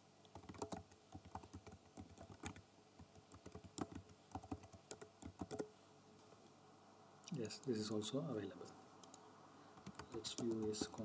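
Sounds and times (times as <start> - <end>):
keyboard typing: 0.2 - 5.7, 9.0 - 11.0.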